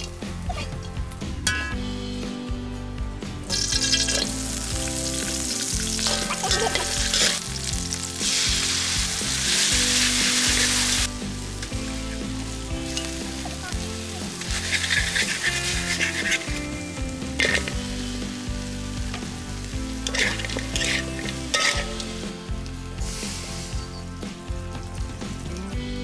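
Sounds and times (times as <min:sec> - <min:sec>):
food sizzling in oil: 0:03.4 - 0:26.0
metal spatula stirring in wok: 0:05.9 - 0:08.0, 0:14.3 - 0:16.7, 0:17.4 - 0:17.8, 0:20.0 - 0:22.2.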